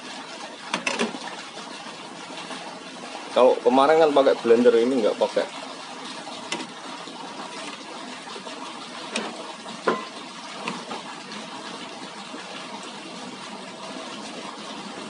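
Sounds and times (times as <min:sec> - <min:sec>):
water splashing into pond: 0:04.8 - 0:15.0.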